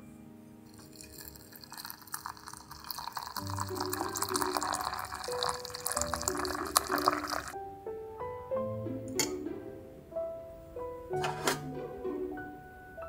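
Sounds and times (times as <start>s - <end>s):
water pouring into a teapot: 0.7s - 7.6s.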